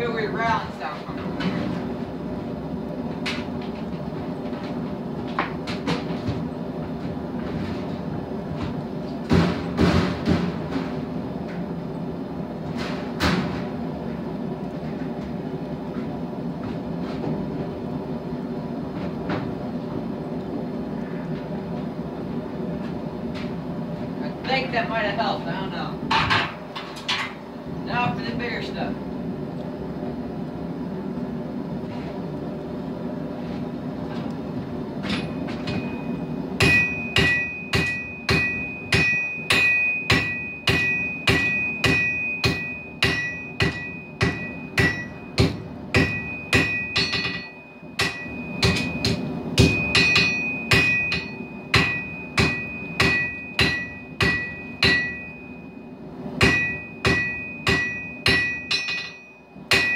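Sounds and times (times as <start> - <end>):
forge running noise: 0.0 - 59.9
hammer striking steel on anvil: 35.1 - 55.7, 56.4 - 59.9.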